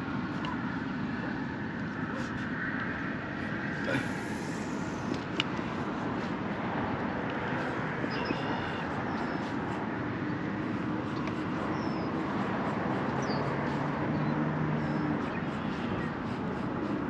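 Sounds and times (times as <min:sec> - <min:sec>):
high bird chirps: 0:08.0 - 0:09.6, 0:11.1 - 0:12.2.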